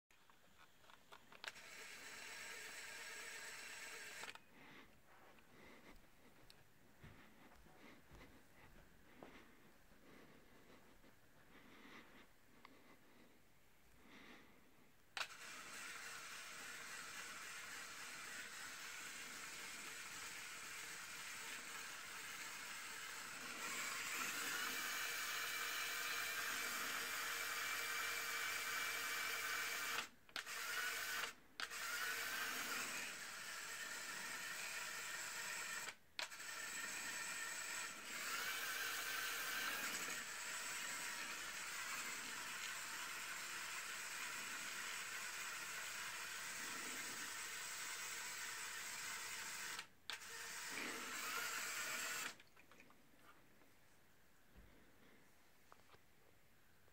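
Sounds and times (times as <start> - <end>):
small electric motor whirring: 0.2 - 4.8, 15.2 - 52.5.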